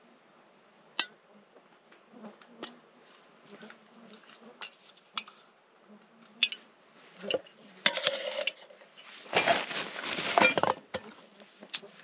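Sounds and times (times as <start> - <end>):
cookware and utensils clinking: 7.3 - 9.7.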